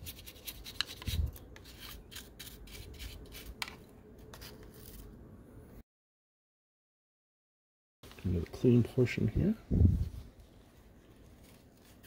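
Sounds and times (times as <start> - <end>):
toothbrush scratching plastic: 0.0 - 3.6.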